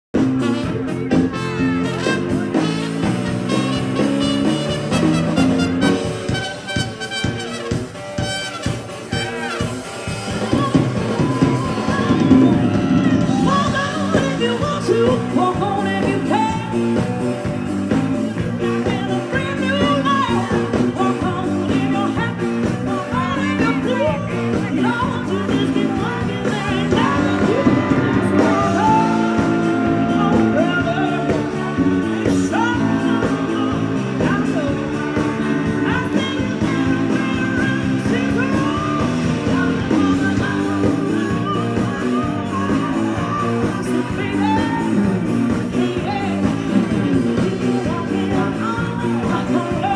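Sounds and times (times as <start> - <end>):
drums: 0.0 - 49.9
keyboard: 0.1 - 49.9
electric guitar: 0.2 - 49.9
woman singing: 10.3 - 17.5, 18.3 - 49.9.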